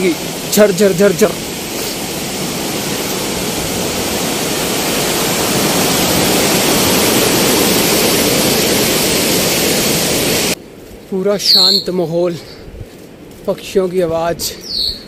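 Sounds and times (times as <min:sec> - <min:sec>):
mountain water rushing: 0:00.0 - 0:10.6.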